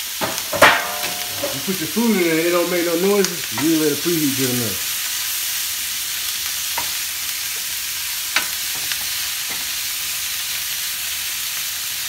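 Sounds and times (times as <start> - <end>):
food sizzling in a skillet: 0.0 - 12.0
wooden spatula knocking on pan: 0.2 - 1.7.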